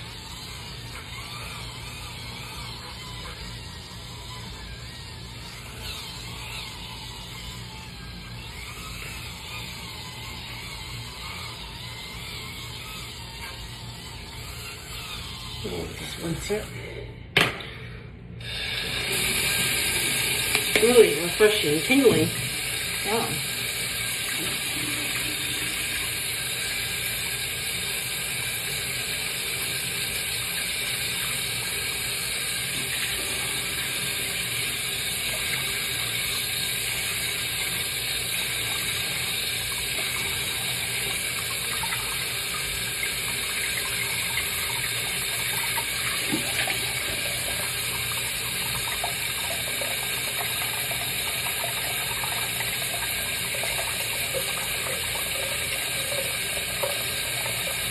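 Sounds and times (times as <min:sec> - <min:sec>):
tap water running into sink: 0:18.4 - 0:57.9.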